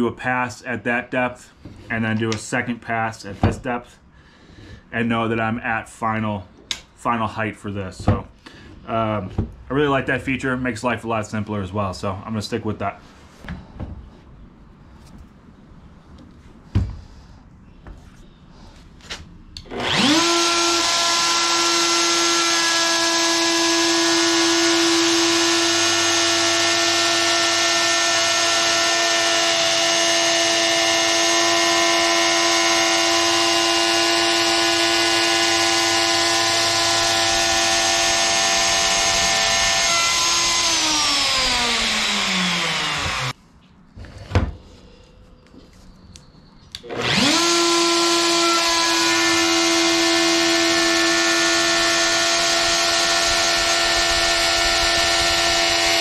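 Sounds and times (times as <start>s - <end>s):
router motor running: 19.6s - 43.4s, 46.8s - 56.0s
router winding down: 19.6s - 43.4s, 46.8s - 56.0s.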